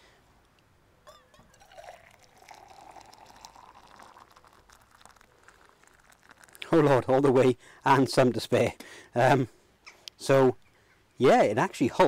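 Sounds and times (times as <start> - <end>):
water pouring into mug: 1.5 - 7.2.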